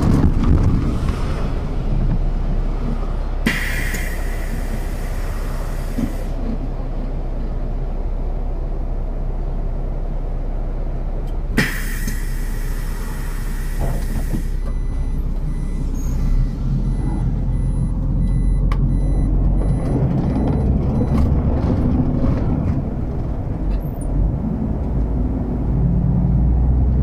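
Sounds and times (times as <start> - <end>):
bus engine idling: 0.0 - 25.8
compressed air hissing: 3.4 - 6.4, 11.6 - 14.6.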